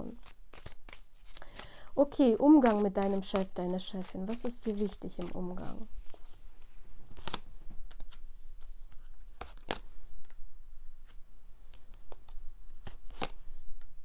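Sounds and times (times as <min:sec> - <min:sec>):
cards snapping and sliding: 0:00.1 - 0:01.8, 0:02.6 - 0:05.4, 0:07.2 - 0:10.4, 0:11.0 - 0:13.9.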